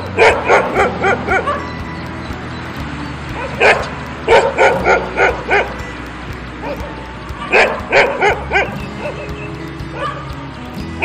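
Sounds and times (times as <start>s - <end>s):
dog barking: 0.2s - 1.6s.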